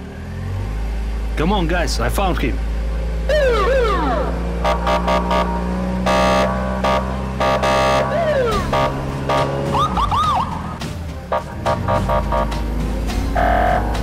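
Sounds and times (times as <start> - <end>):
police siren blasts: 3.3 - 10.8, 13.4 - 14.0.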